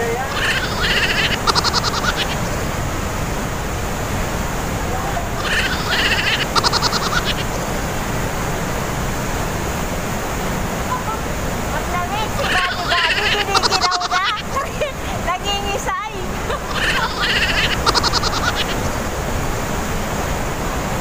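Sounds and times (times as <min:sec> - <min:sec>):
rapid trill of clicking pulses: 0:00.0 - 0:02.7, 0:05.3 - 0:07.6, 0:16.7 - 0:19.0
waterfall rushing in gorge: 0:00.0 - 0:21.0.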